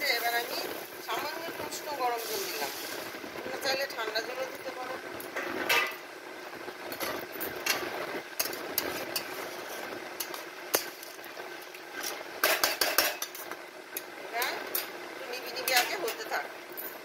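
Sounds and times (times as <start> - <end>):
steady hiss: 0.0 - 15.7
spatula scraping a wok: 2.2 - 3.0, 7.0 - 11.2.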